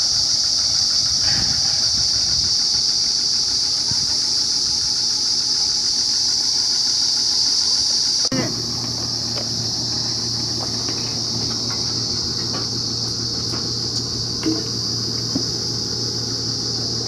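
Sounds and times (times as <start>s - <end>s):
high-pitched insect chorus: 0.0s - 17.0s
low steady hum: 8.3s - 17.0s.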